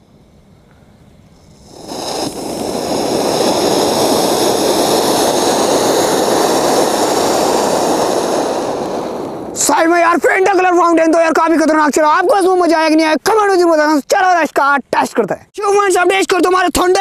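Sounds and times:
firework fountain hissing: 1.3 - 11.8.

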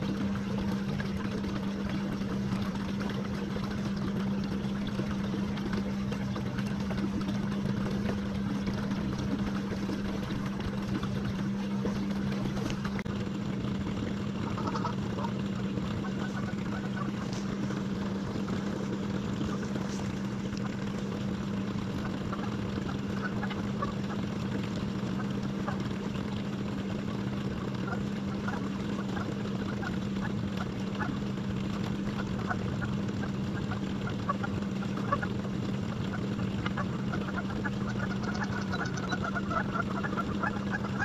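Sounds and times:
trolling motor humming: 0.0 - 41.0
goose honks: 14.4 - 15.3.

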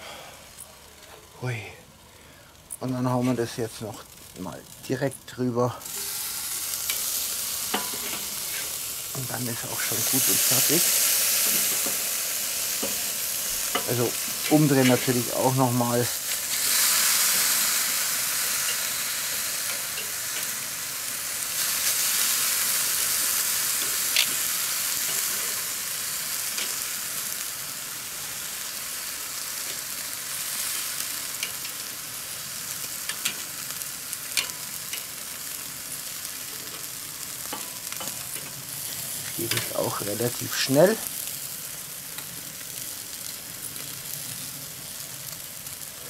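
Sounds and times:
meat sizzling on a grill: 0.0 - 46.0
tongs clicking against grate: 13.6 - 15.2, 31.4 - 31.8, 32.8 - 33.5, 34.3 - 35.1, 39.5 - 39.8.

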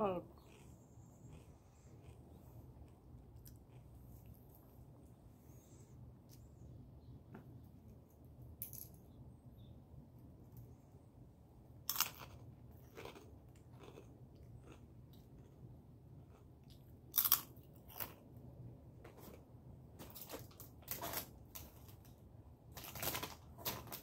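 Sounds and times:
chewing crisp food: 0.2 - 5.2, 11.9 - 18.4.

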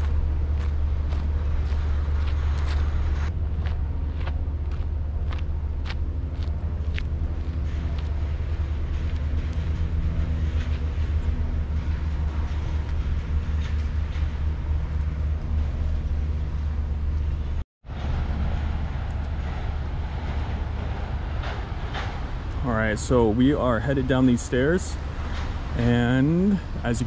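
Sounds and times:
footsteps: 0.0 - 17.3
vehicle engines rumbling: 0.0 - 27.0.

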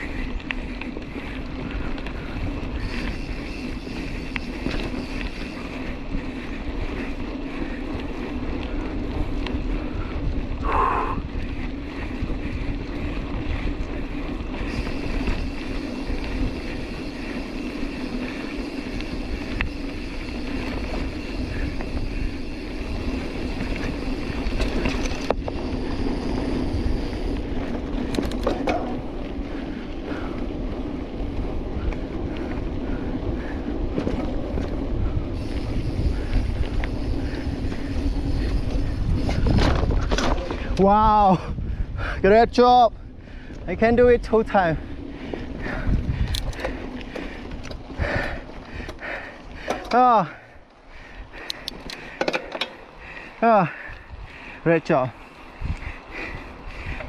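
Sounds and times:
bike rumbling and rattling: 0.0 - 57.0
wind on microphone: 8.4 - 49.7, 55.1 - 57.0.

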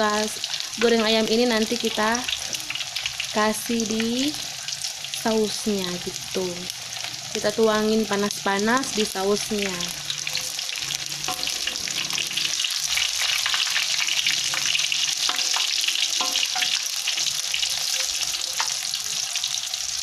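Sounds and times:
chicken deep-frying in oil: 0.0 - 20.0
metal spatula scraping a wok: 9.9 - 18.7.

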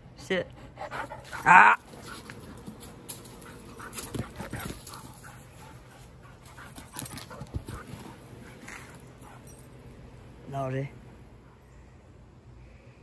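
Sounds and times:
dog panting: 0.4 - 9.7.

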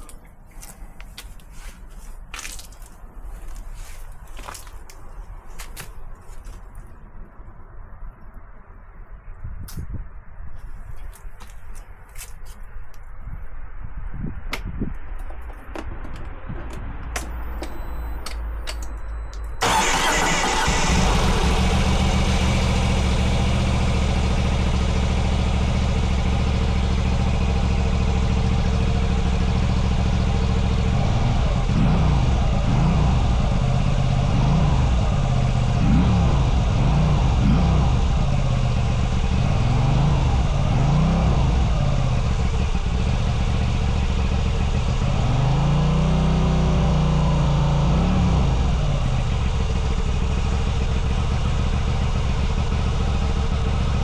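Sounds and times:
motorcycle engine idling: 19.6 - 40.8, 41.4 - 45.2, 48.6 - 54.0
motorcycle engine revving: 19.6 - 54.0.

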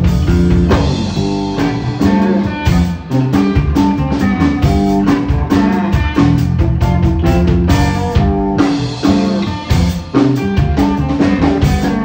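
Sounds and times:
drums playing steady beat: 0.0 - 12.0
electric guitar through amplifier: 0.0 - 12.0.

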